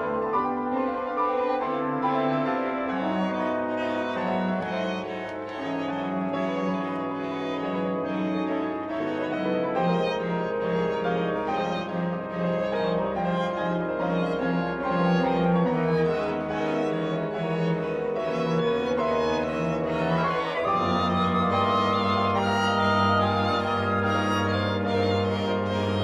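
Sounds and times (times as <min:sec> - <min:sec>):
cello: 0:00.0 - 0:26.0
piano: 0:00.0 - 0:26.0
violins: 0:00.0 - 0:26.0
double bass: 0:10.0 - 0:26.0.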